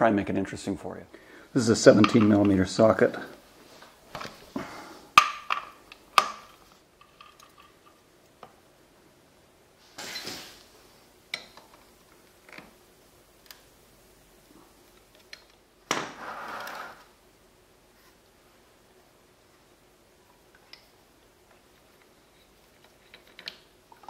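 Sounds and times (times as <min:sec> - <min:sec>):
short metal scrape: 0:16.2 - 0:17.1.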